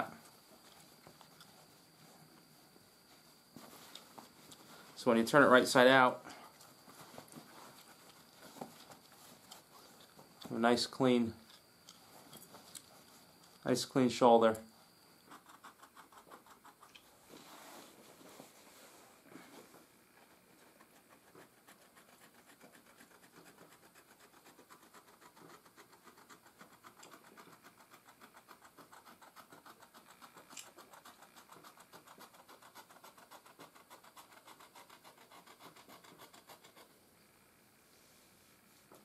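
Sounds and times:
hands scratching thread and buckskin: 15.2 - 18.6, 20.2 - 36.9.

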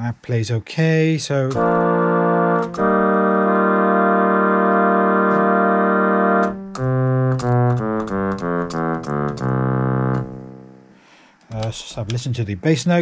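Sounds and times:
string synth single notes: 1.6 - 10.9
string synth held chord: 1.6 - 11.0.

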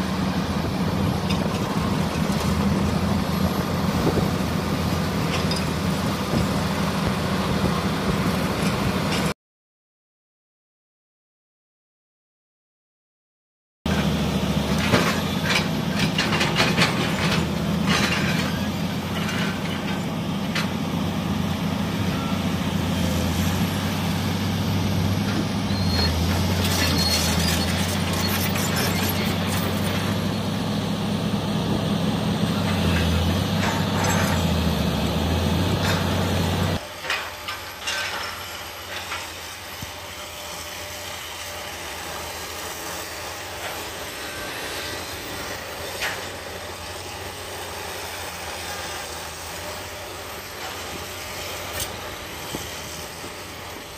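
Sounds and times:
excavator diesel engine: 0.0 - 9.4, 13.9 - 53.9
machine clanks and knocks: 14.7 - 20.8.

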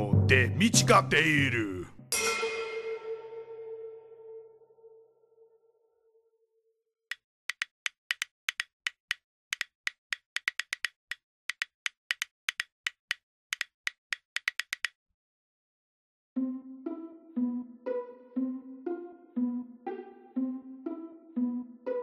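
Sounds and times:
wood-block clicks: 7.1 - 15.0.

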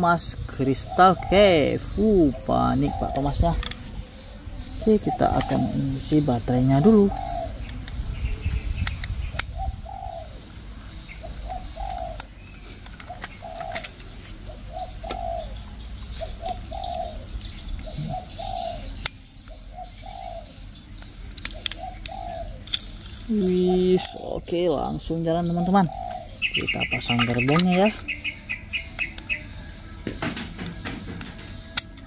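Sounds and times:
dove cooing: 0.0 - 32.0
plastic toy train clicks: 11.9 - 14.1, 21.0 - 23.2, 27.1 - 28.2, 30.1 - 32.0.

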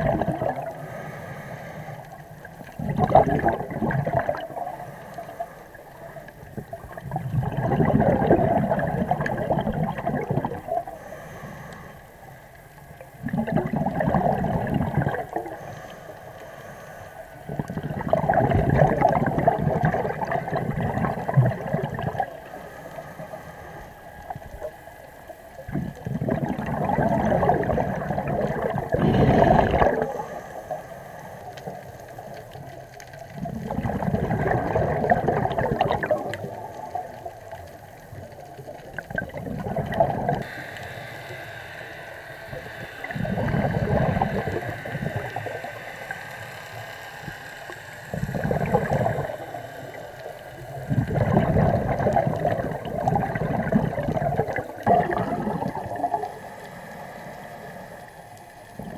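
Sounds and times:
underwater regulator bubbles: 0.0 - 11.9, 13.0 - 16.0, 17.4 - 40.6, 42.5 - 46.2, 48.1 - 58.9
quiet breaths in: 0.5 - 2.8, 4.4 - 7.0, 10.6 - 13.2, 15.1 - 17.9, 20.0 - 26.7, 27.3 - 33.6, 36.2 - 51.3, 53.9 - 58.9.

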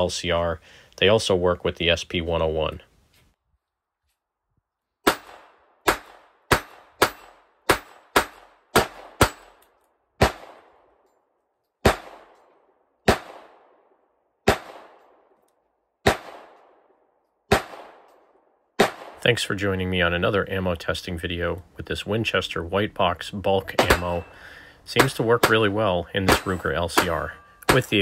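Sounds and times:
gunshot echo: 5.0 - 9.6, 11.8 - 12.4, 13.0 - 13.8, 14.4 - 15.2, 16.0 - 16.8, 17.5 - 18.1, 18.8 - 19.2, 23.8 - 24.3.

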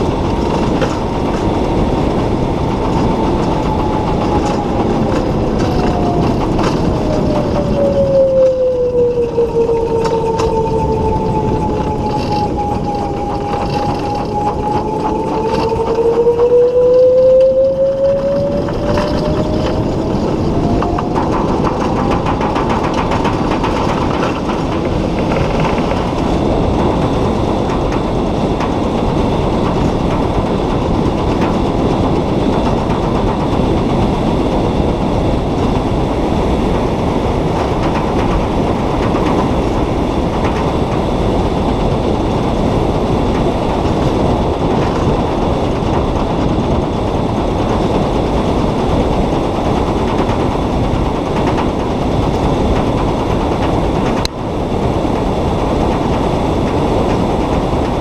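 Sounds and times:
road and tyre rumble: 0.0 - 58.0
electric motor whine: 2.9 - 22.5.

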